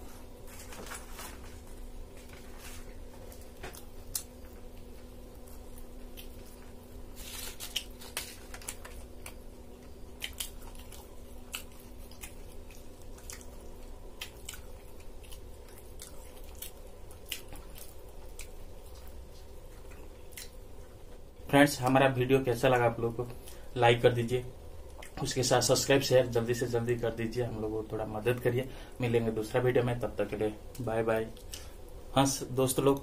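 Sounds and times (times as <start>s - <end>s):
steady low hum: 0.0s - 33.0s
person chewing: 2.2s - 21.0s, 24.8s - 25.2s.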